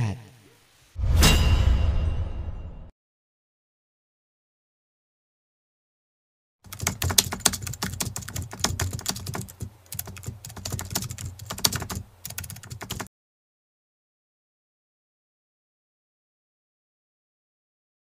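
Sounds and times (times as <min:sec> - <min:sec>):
keyboard key clicks: 0:06.7 - 0:13.1.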